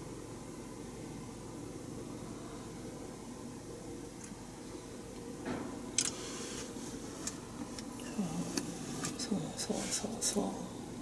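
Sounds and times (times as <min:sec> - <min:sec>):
soft low voice sounds: 0:08.0 - 0:11.0.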